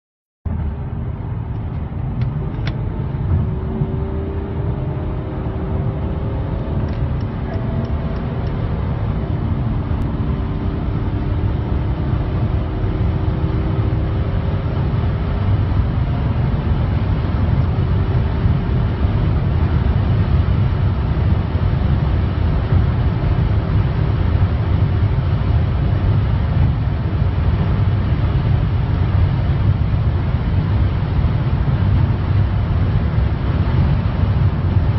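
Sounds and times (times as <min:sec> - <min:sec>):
car engine accelerating: 0:00.5 - 0:34.9
road rumble: 0:00.5 - 0:34.9.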